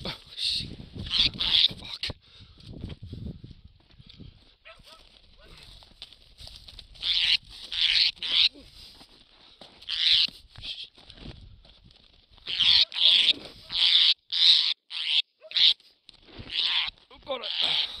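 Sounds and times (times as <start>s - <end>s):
parrot screeching squawks: 1.1s - 1.8s, 7.0s - 8.5s, 9.9s - 10.3s, 12.5s - 15.8s, 16.5s - 18.0s.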